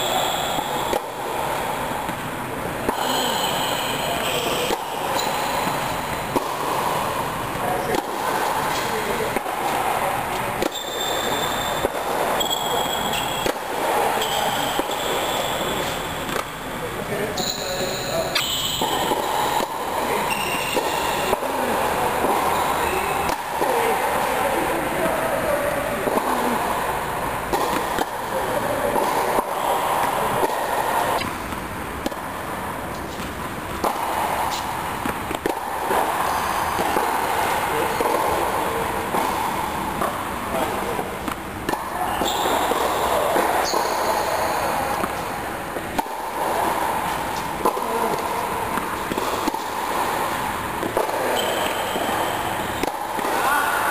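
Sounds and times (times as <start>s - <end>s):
steady background hum: 0.0s - 53.9s
tennis ball struck by rackets: 0.5s - 1.3s, 4.4s - 7.2s, 7.9s - 16.5s, 23.2s - 23.8s, 27.5s - 40.4s, 41.0s - 44.1s, 44.7s - 53.4s.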